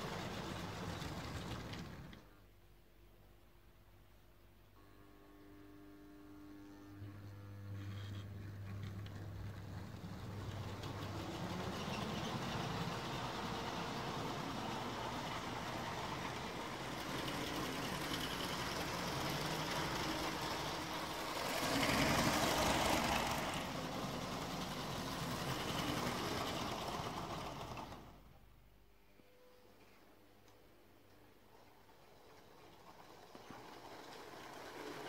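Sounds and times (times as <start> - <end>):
wheels rattling on plastic track: 0.0 - 2.3, 8.6 - 28.3, 31.4 - 35.0
toy train motor whirring: 8.8 - 27.8, 32.8 - 35.0.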